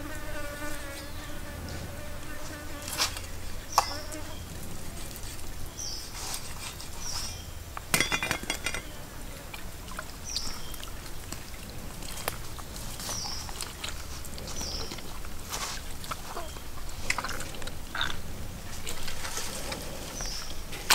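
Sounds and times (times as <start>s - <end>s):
stream water trickling: 3.5s - 20.8s
hand scraping raw chicken: 4.7s - 7.5s, 11.3s - 20.9s
bird chirping: 14.4s - 15.0s.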